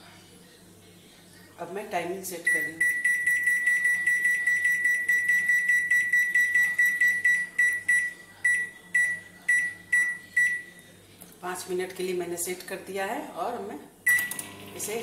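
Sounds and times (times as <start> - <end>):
microwave button beeps: 2.5 - 10.7, 14.1 - 14.5.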